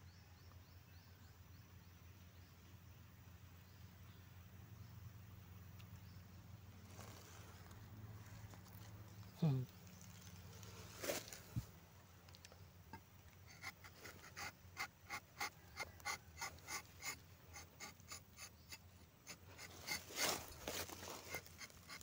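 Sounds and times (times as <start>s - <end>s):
knife scraping tree bark: 13.4s - 22.0s.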